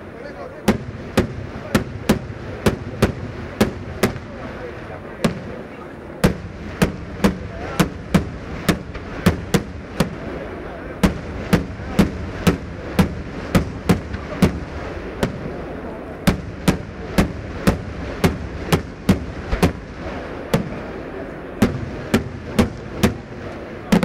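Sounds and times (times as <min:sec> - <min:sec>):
fireworks bangs: 0:00.6 - 0:24.0
steady low rumble: 0:00.8 - 0:23.9.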